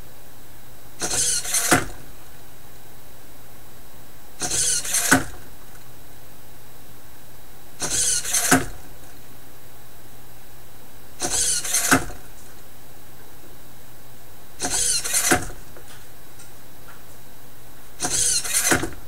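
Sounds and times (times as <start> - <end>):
servo gear whir: 1.0 - 2.0, 4.4 - 5.3, 7.8 - 8.8, 11.2 - 12.2, 14.6 - 15.6, 18.0 - 19.0.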